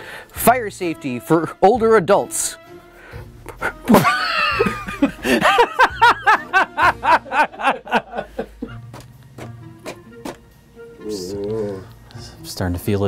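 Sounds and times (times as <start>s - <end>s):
man laughing hard: 3.4s - 8.8s.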